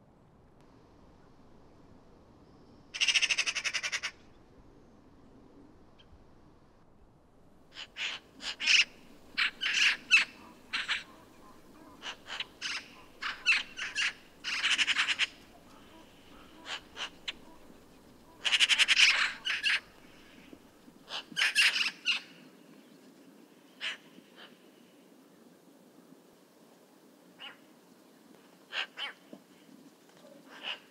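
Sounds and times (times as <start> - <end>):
magpies chattering: 3.0 - 4.3, 7.6 - 22.2.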